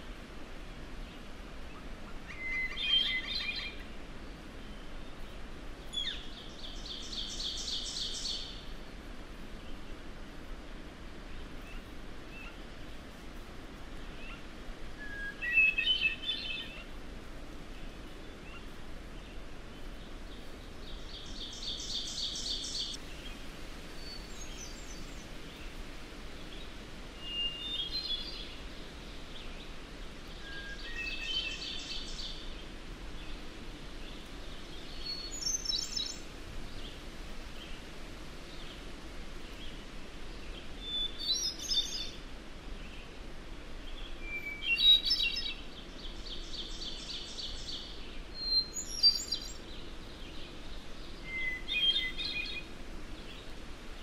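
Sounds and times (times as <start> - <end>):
low background hiss: 0.0 - 54.0
birds singing: 2.3 - 4.0, 17.8 - 23.4, 34.1 - 37.0, 39.4 - 42.2, 43.8 - 54.0.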